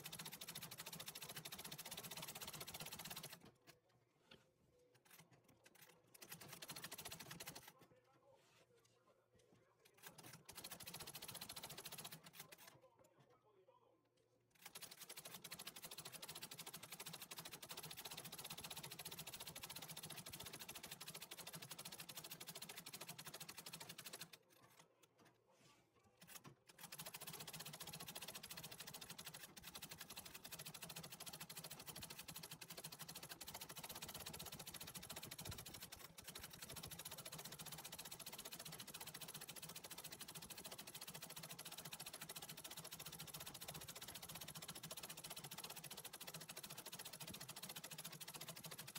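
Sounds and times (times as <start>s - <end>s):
treadle sewing machine stitching: 0.0s - 3.8s, 5.0s - 7.8s, 9.8s - 12.8s, 14.5s - 25.3s, 26.2s - 48.9s.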